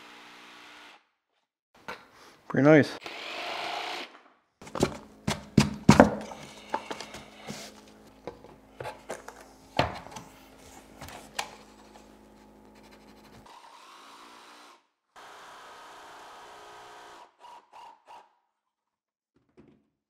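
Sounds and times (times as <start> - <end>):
cordless jigsaw running: 0.0 - 1.0, 3.0 - 8.0, 11.0 - 18.3
floor planks knocking: 4.6 - 7.2.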